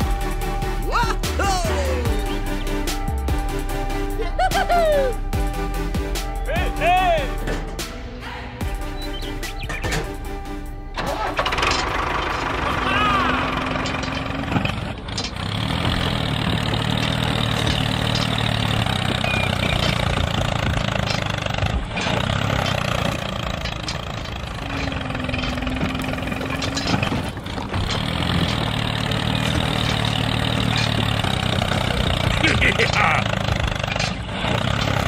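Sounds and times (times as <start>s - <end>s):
tractor engine chugging: 0.0s - 35.0s.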